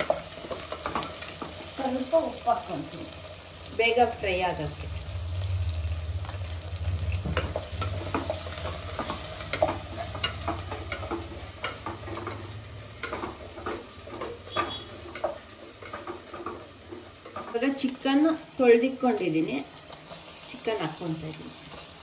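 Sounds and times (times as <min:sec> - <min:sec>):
light sizzle of frying: 0:00.0 - 0:22.0
low hum: 0:04.0 - 0:13.8
wooden spatula scraping a pot: 0:07.4 - 0:18.0.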